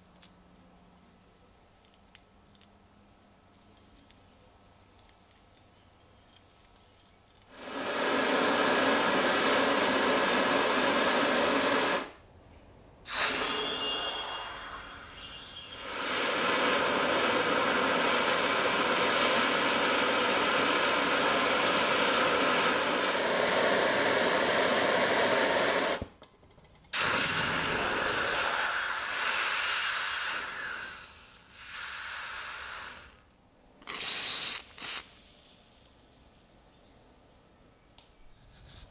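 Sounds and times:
gas torch flame hissing: 7.5s - 12.2s, 13.0s - 26.2s, 26.9s - 36.2s.

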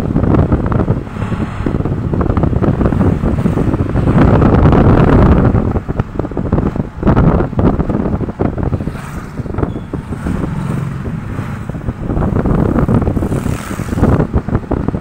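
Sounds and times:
engine and road noise rumble: 0.0s - 15.0s
wind buffeting microphone: 0.0s - 15.0s.

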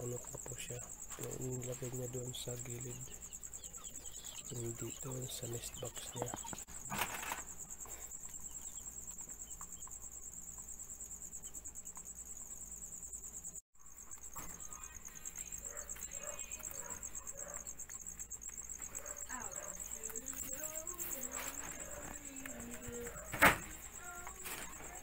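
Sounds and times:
crickets chirping: 0.0s - 25.0s.

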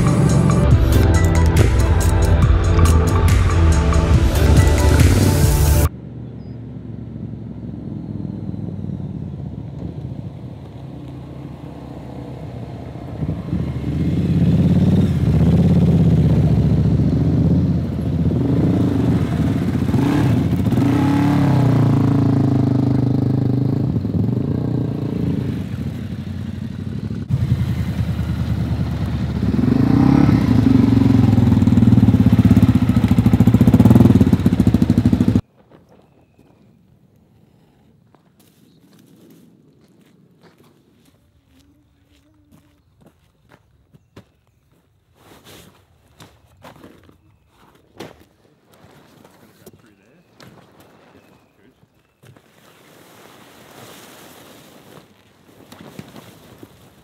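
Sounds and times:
motorcycles revving past: 0.0s - 35.4s.

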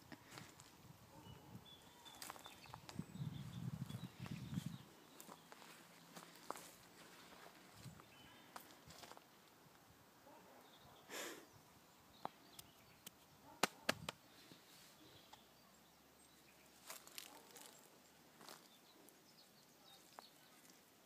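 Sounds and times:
twigs and leaves crackling: 2.1s - 3.0s, 16.8s - 18.8s
dog rustling on ground: 16.8s - 17.8s.

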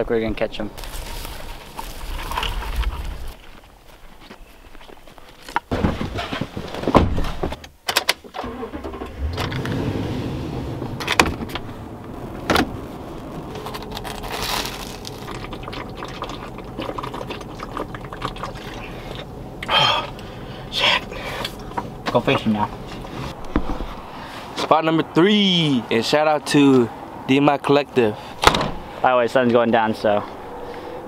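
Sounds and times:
car engine and road noise: 0.6s - 3.8s, 5.5s - 31.0s
loud knocks and rustling: 5.7s - 7.6s.

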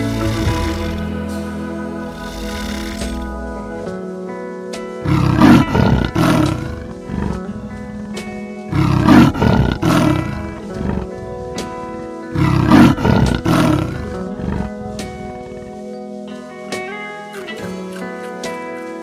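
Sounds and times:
large animal roaring: 0.0s - 1.4s, 2.0s - 3.8s, 5.0s - 8.0s, 8.7s - 11.5s, 12.3s - 15.6s
background music: 0.0s - 19.0s.

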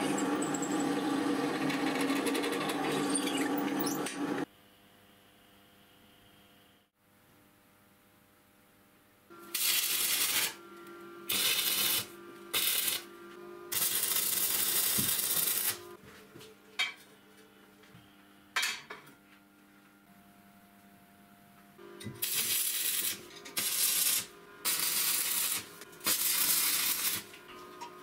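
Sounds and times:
arc welding bursts: 9.4s - 10.6s, 11.3s - 13.1s, 13.7s - 15.8s, 22.2s - 27.3s.

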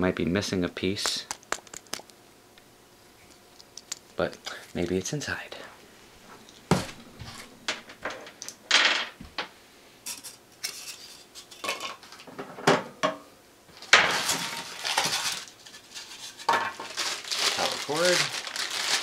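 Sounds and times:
plastic and styrofoam rustling: 13.8s - 19.0s.

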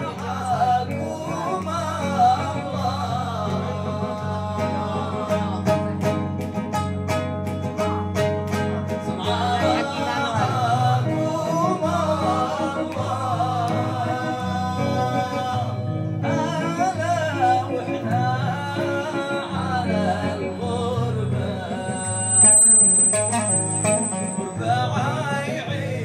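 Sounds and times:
man singing: 0.0s - 6.0s, 9.1s - 22.4s, 23.9s - 26.0s
oud playing: 4.4s - 11.0s, 23.0s - 25.6s.

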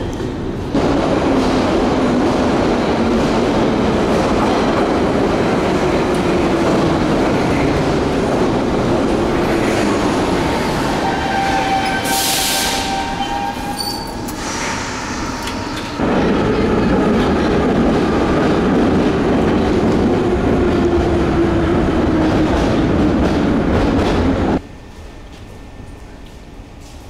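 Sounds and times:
train wheels rumbling: 0.0s - 24.6s
brake squeal: 11.4s - 16.0s.

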